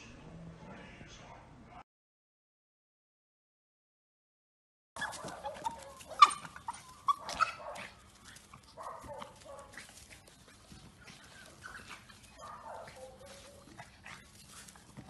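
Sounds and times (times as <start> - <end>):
dog yipping and whining: 5.0 - 8.0, 11.2 - 14.9
small dog barking and yelping: 5.0 - 14.8.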